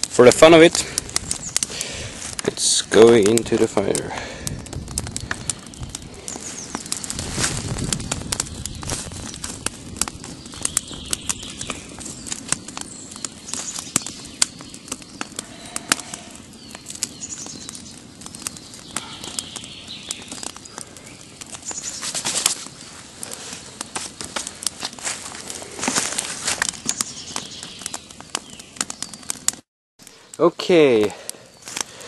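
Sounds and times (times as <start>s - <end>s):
wood fire crackling and popping: 0.0s - 32.0s
footsteps rustling dry leaves: 6.1s - 9.6s, 21.5s - 27.7s.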